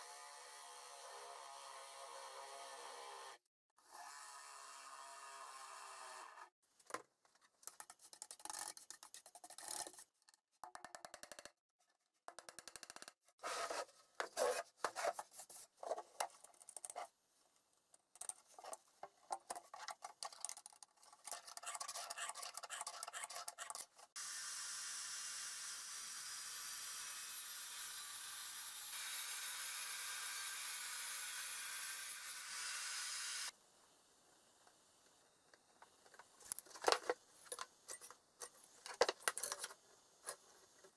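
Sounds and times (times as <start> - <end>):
pencil scratching: 21.3 - 23.9.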